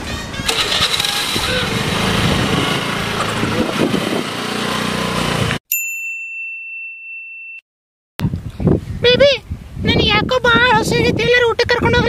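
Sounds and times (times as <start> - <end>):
music: 0.0 - 0.9
scooter engine running: 0.4 - 5.6.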